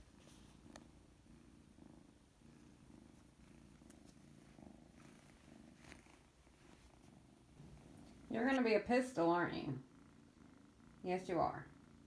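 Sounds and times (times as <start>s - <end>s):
small rustles: 0.0s - 8.9s
kitten purring: 0.0s - 12.0s.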